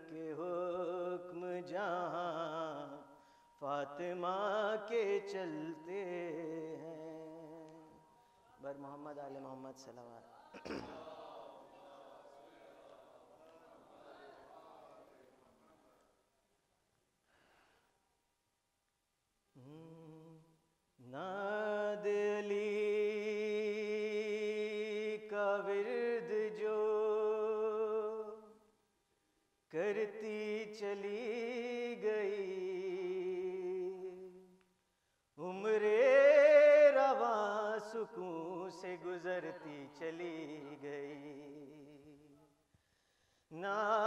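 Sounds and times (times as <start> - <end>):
man singing unaccompanied: 0.0 - 11.1, 19.6 - 28.6, 29.7 - 34.6, 35.4 - 42.3, 43.5 - 44.0.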